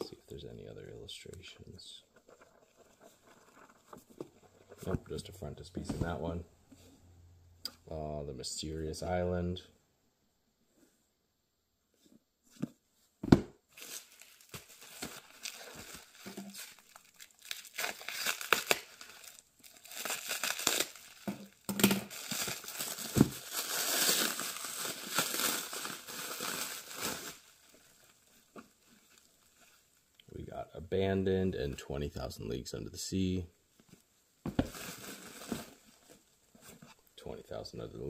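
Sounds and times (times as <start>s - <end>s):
plastic wrap crinkling and ripping: 13.7s - 30.1s, 34.5s - 37.1s.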